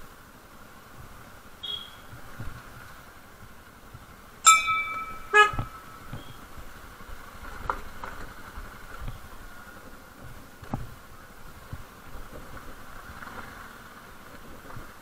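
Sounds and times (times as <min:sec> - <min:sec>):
motorcycle horn honking: 0:01.6 - 0:02.1, 0:04.5 - 0:06.0.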